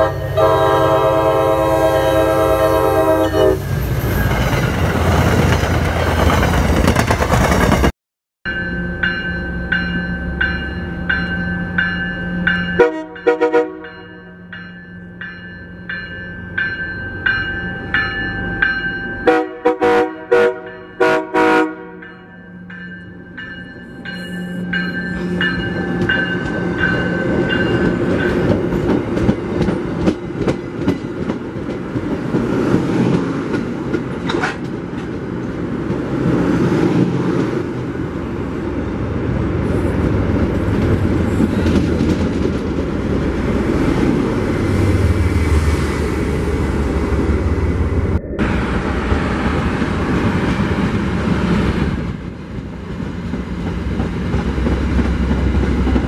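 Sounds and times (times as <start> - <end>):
train chord horn: 0.0 - 3.8, 12.8 - 14.4, 19.2 - 22.1
wheels clicking over rail joints: 25.5 - 36.4
deep engine drone: 46.4 - 50.0.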